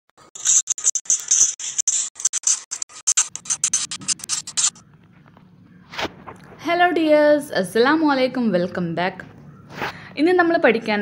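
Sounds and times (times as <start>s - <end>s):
pen scratching on paper: 0.2s - 4.8s.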